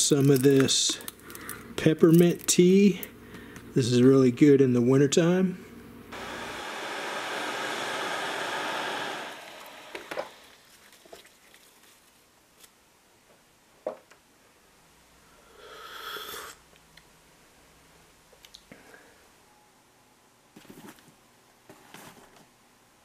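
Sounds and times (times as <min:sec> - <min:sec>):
person slurping tea: 0:15.5 - 0:16.6.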